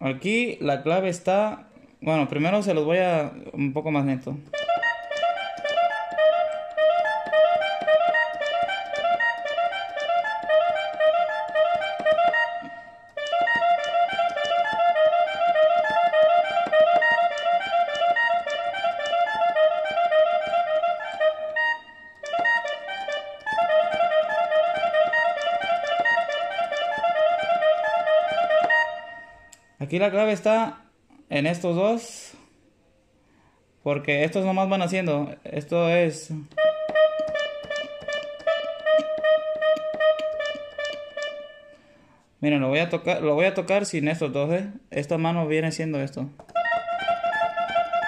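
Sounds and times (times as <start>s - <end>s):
keyboard playing quick short notes: 4.4s - 29.8s, 36.5s - 41.8s.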